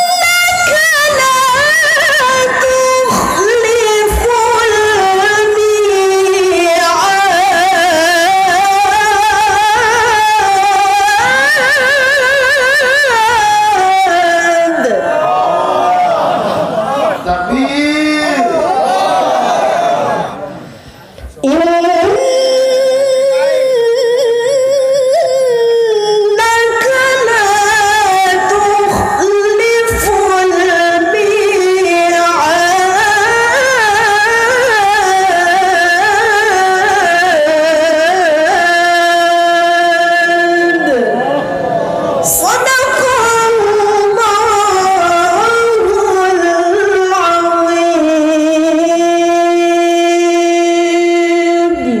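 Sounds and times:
woman reciting melodically: 0.0s - 15.2s, 17.3s - 18.8s, 20.8s - 52.0s
woman taking breath: 20.6s - 21.3s.

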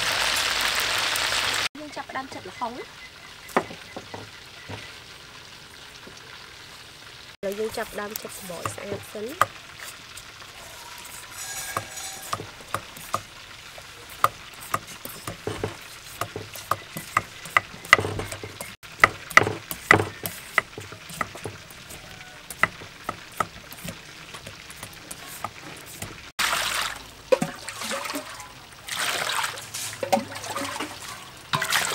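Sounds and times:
water pouring into metal bowl: 7.4s - 31.9s
peeler scraping papaya: 10.6s - 13.3s, 13.9s - 26.2s.

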